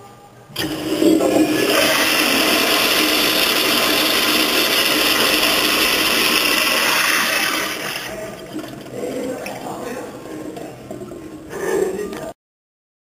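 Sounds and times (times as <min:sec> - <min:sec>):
toilet flush water rushing: 0:00.6 - 0:09.8.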